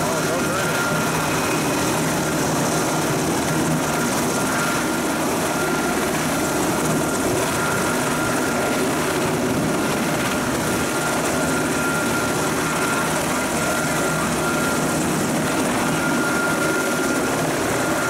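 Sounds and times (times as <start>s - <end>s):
helicopter engine and rotor: 0.0s - 18.0s.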